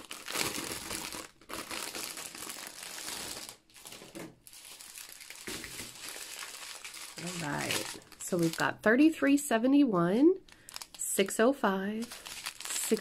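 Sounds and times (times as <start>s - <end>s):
plastic packaging crinkling: 0.0s - 8.7s, 10.5s - 11.0s, 12.0s - 13.0s.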